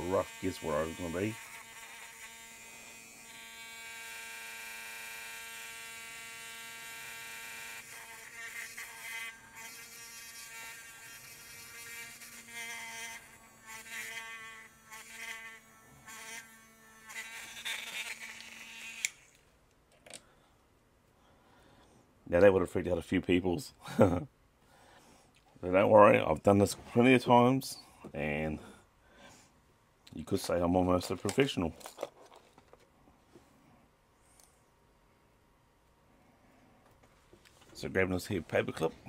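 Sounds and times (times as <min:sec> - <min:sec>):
rotary tool drill whining: 0:00.2 - 0:19.4.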